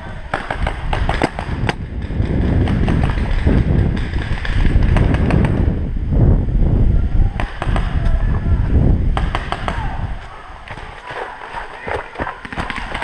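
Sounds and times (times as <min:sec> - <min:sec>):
low microphone rumble: 0:00.0 - 0:11.1
paintball markers firing: 0:00.3 - 0:05.6, 0:10.6 - 0:13.0.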